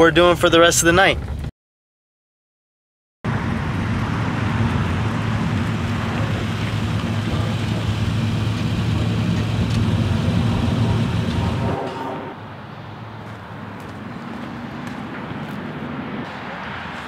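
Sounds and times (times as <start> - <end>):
car road and engine drone: 3.2 - 17.0.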